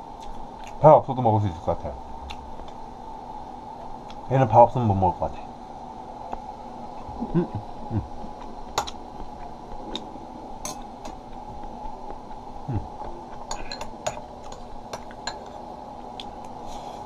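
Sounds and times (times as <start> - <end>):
steady background hum: 0.0 - 17.0
low mouth sounds: 7.0 - 8.6, 12.3 - 13.7
spoon and chopsticks clinking on bowl: 13.5 - 15.5.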